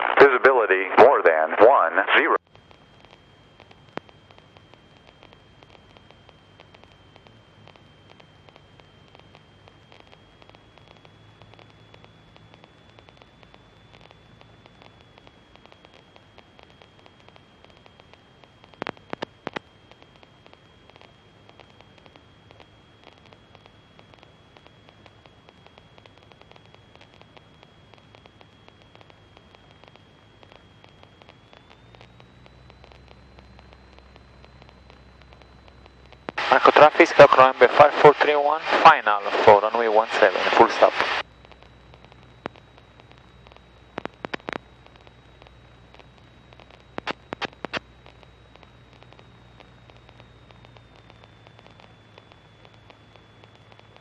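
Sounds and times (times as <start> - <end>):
faint low hum: 0.0 - 54.0
high-pitched whine: 0.0 - 54.0
radio hiss and crackle: 0.0 - 54.0
sharp clicks: 43.9 - 44.7, 46.9 - 47.8.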